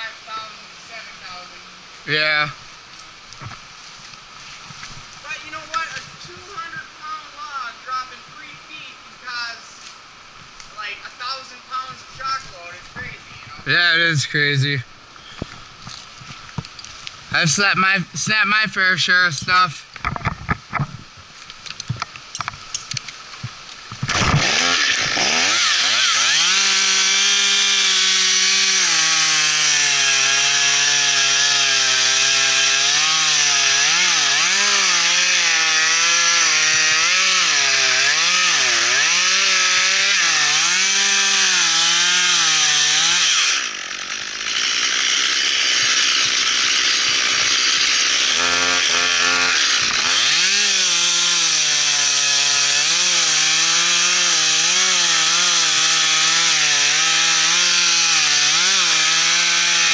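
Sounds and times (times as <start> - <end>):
chainsaw cutting wood: 20.0 - 59.9.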